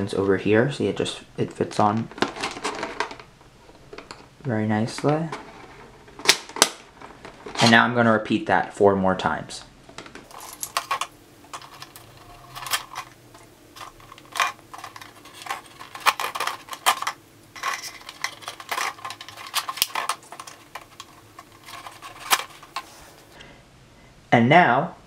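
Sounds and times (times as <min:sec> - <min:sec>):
plastic caps clicking: 0:10.1 - 0:22.9.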